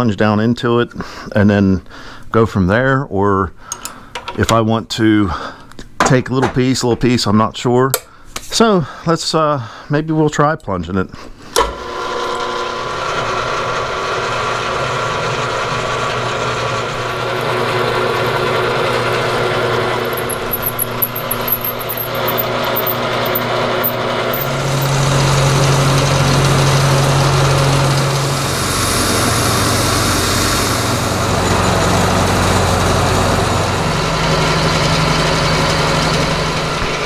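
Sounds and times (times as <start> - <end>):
milling machine cutting steel: 11.8 - 37.0.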